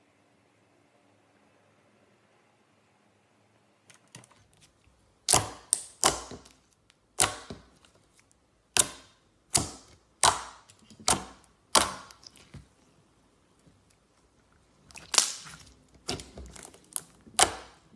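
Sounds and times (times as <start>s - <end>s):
slime popping and clicking: 14.9s - 17.8s.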